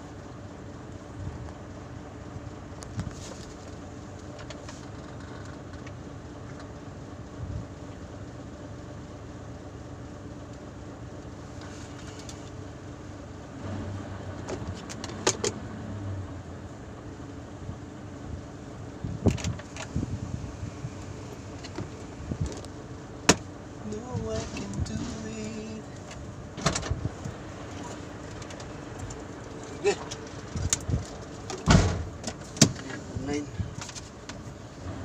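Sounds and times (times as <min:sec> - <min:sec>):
diesel engine idling: 0:00.0 - 0:35.0
sharp clicks and rattles: 0:02.8 - 0:06.8, 0:14.3 - 0:15.6, 0:19.2 - 0:20.1, 0:21.0 - 0:33.0.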